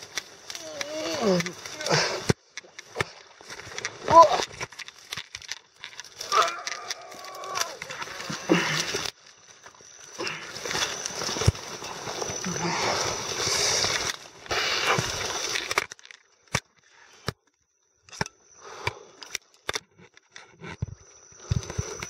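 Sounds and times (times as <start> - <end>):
vegetation rustling: 0.0 - 16.1
stems snapping: 0.0 - 17.4.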